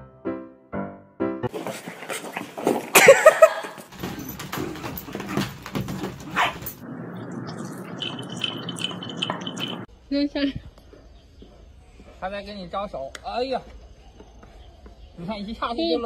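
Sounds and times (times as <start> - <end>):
dog yipping and barking: 6.3 - 6.8.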